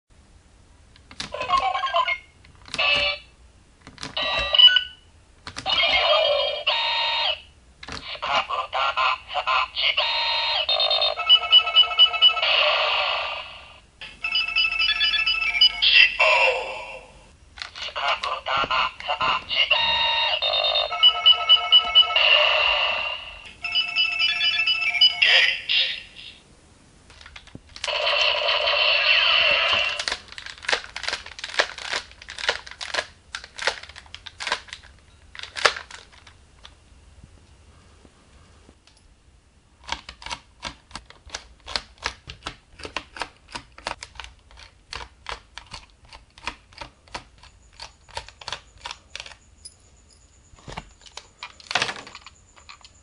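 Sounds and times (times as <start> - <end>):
electronic toy beeps: 1.5 - 3.3, 4.2 - 5.0, 10.0 - 12.5, 18.8 - 22.8
toy gun electronic beeps: 2.8 - 3.2, 4.2 - 4.9.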